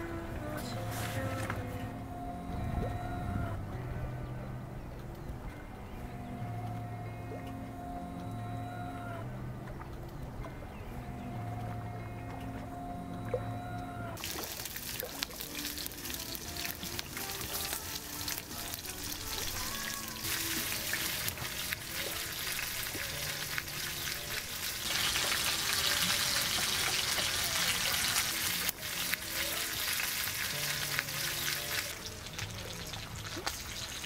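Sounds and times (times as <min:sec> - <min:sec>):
steak sizzling in a skillet: 0:14.2 - 0:32.1.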